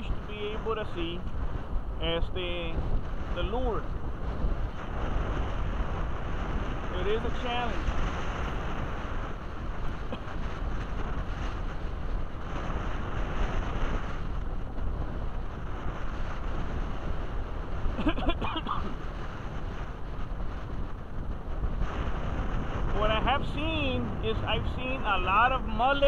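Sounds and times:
choppy water: 0.0 - 25.4
wind buffeting microphone: 0.0 - 26.0.

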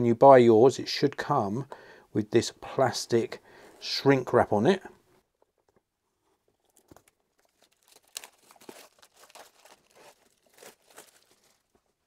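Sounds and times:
plastic wrap crinkling and tearing: 6.6 - 12.0.

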